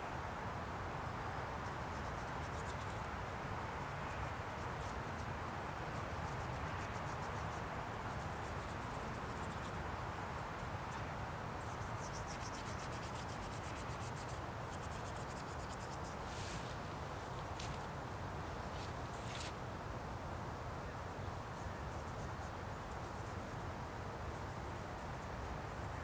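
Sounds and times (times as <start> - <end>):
steady background hiss: 0.0 - 26.0
paintbrush scrubbing paint: 11.9 - 16.4.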